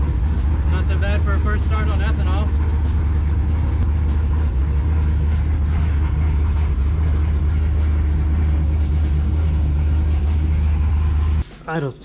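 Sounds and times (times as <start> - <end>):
engine idling: 0.0 - 11.6.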